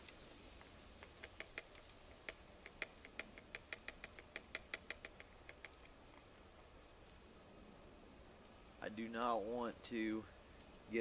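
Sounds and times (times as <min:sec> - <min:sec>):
faint ticks and taps: 0:00.0 - 0:06.3.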